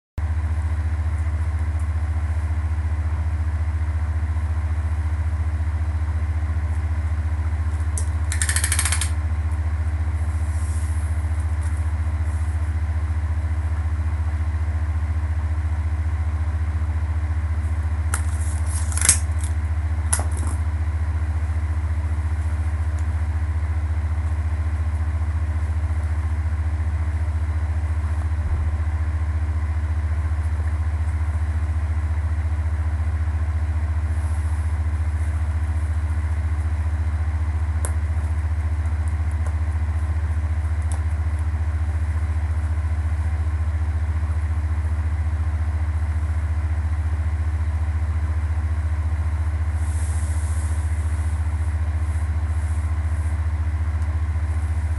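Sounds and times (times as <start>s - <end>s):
steady low hum: 0.2s - 54.9s
sharp clicks: 8.0s - 9.2s.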